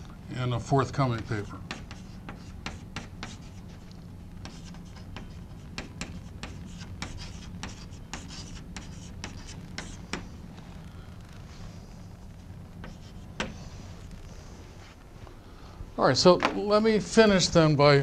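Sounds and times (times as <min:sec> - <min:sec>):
chalk writing on blackboard: 0:01.2 - 0:10.3, 0:12.8 - 0:15.0.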